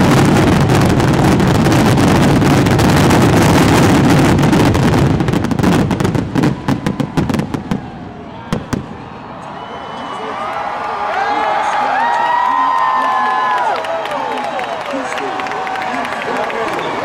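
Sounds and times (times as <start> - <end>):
fireworks booming and crackling: 0.0 - 9.1.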